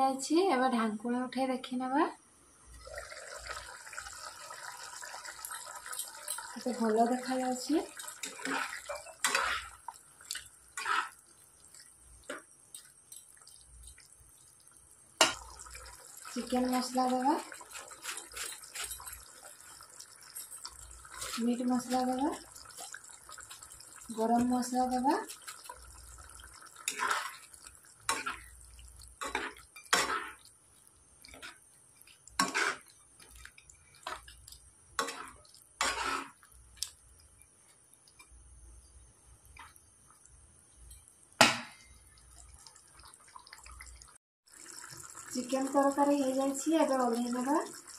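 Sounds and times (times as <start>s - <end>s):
gravy squelching: 7.8s - 14.8s
metal spoon scraping a pan: 8.1s - 9.8s, 10.8s - 11.2s, 16.8s - 19.2s, 26.8s - 28.6s, 29.2s - 30.5s, 31.3s - 34.4s, 35.0s - 36.4s
spoon scraping and tapping pan: 29.2s - 30.5s, 31.3s - 36.9s.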